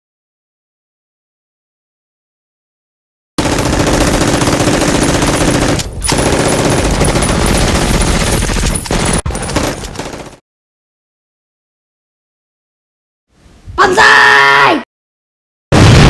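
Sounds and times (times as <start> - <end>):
automatic gunfire: 3.4 - 10.4.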